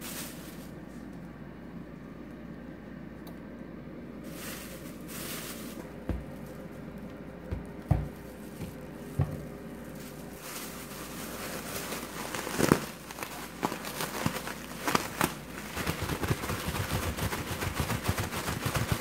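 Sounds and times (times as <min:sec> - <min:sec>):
plastic bag crinkling: 0:00.0 - 0:01.1, 0:04.2 - 0:19.0
soft thumps: 0:05.9 - 0:09.6.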